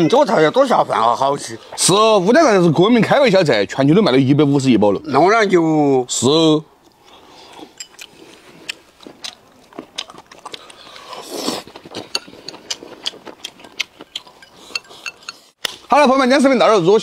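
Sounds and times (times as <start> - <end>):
people chewing and biting food: 6.8 - 15.9
chopsticks clicking on porcelain bowls: 13.4 - 15.4.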